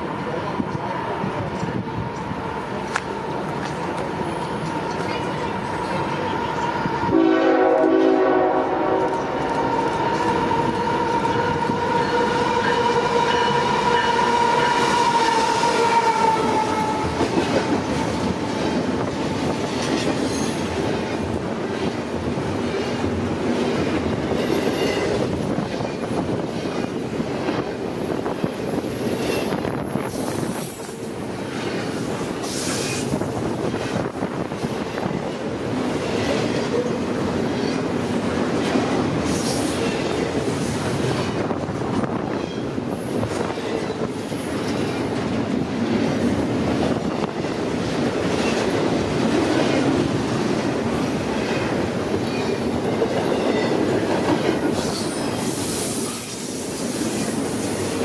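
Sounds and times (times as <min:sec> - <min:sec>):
train cars clattering over rails: 0:00.0 - 0:58.0
train horn: 0:07.1 - 0:17.4
train brakes squealing: 0:20.2 - 0:20.7, 0:29.1 - 0:33.6, 0:39.2 - 0:40.9, 0:54.3 - 0:58.0.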